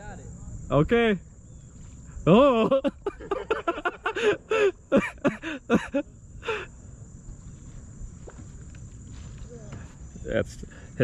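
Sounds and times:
low steady background noise: 0.0s - 11.0s
person laughing: 2.3s - 6.7s.

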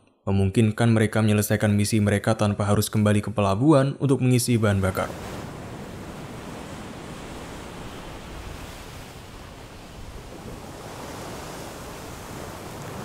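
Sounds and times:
wind: 4.4s - 13.0s
sea water rushing past hull: 4.7s - 13.0s.

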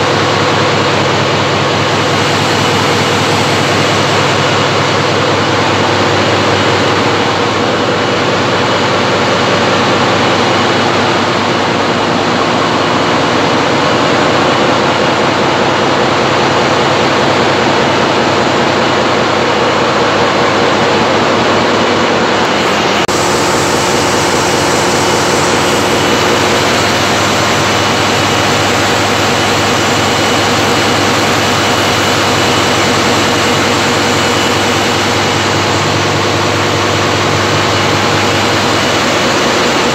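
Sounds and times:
large engines droning: 0.0s - 39.9s.

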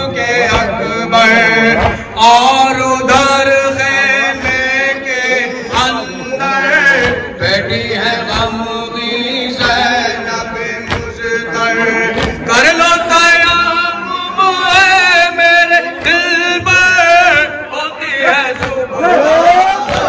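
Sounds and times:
man chanting a lament: 0.0s - 20.0s
hands striking chest: 12.2s - 12.5s.

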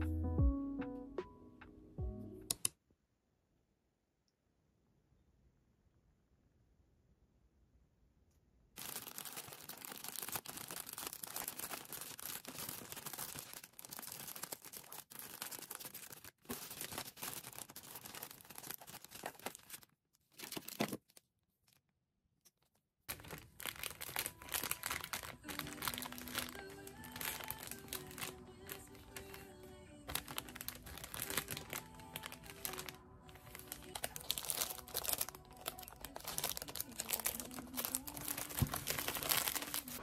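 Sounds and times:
soft background music: 0.0s - 2.6s, 23.6s - 40.0s
plastic bag crinkling: 8.8s - 21.2s, 23.1s - 40.0s.

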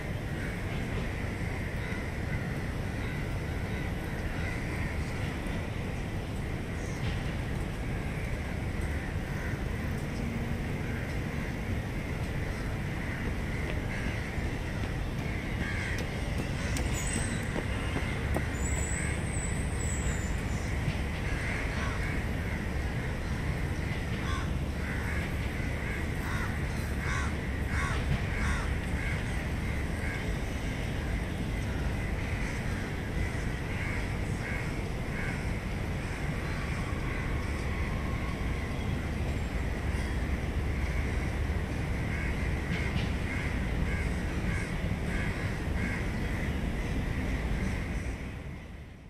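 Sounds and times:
distant traffic hum: 0.0s - 49.0s
birds calling: 10.8s - 35.6s.

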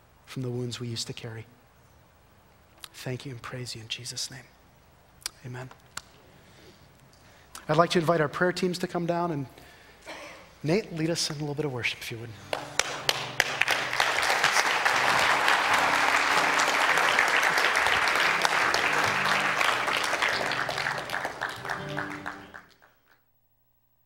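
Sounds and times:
guitar playing held notes: 12.4s - 22.7s
congregation applauding: 12.4s - 23.2s.

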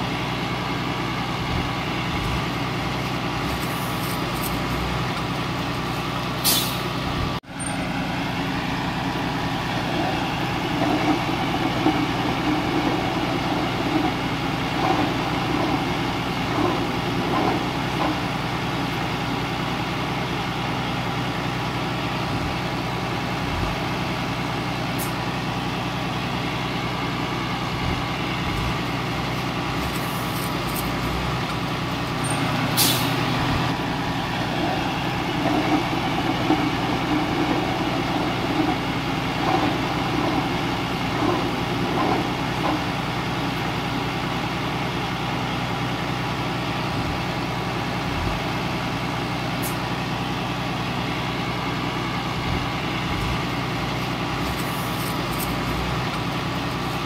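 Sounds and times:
diesel engine running: 0.0s - 57.0s
short sharp hiss: 6.4s - 6.9s.

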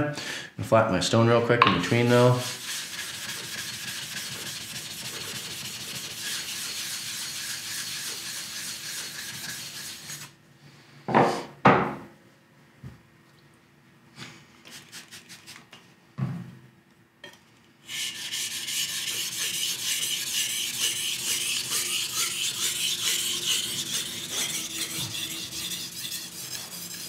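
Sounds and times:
knife scraping on whetstone: 2.1s - 10.4s, 17.9s - 27.0s.

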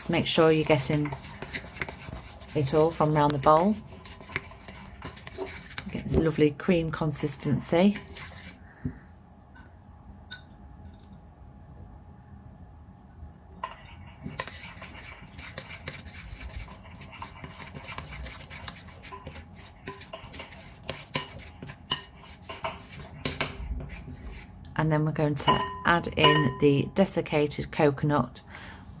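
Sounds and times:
metal spoon stirring batter in bowl: 0.0s - 8.6s, 13.6s - 24.6s, 25.4s - 26.6s
spoon scraping and clinking bowl: 0.6s - 5.9s, 13.6s - 24.4s, 25.5s - 26.6s.

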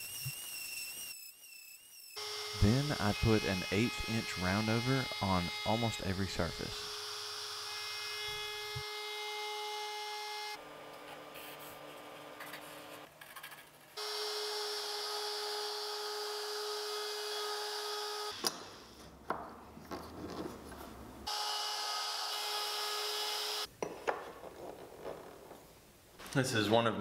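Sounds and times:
router whining cutting wood: 0.0s - 10.6s, 14.0s - 18.5s, 21.3s - 23.7s.

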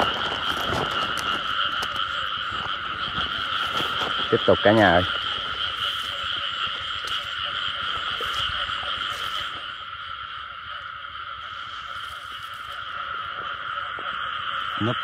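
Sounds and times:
chorus of frogs calling: 0.0s - 15.0s.

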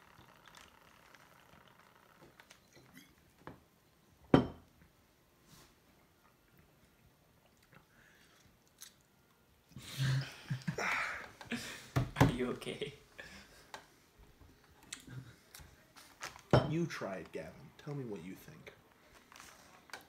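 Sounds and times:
bottle knocking on wooden table: 4.3s - 4.6s, 16.5s - 16.7s.

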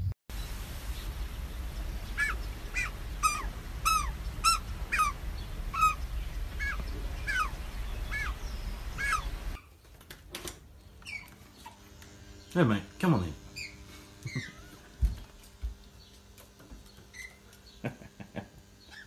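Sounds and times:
steady low rumble: 0.3s - 9.6s
magpie calls bending down: 2.2s - 9.6s.

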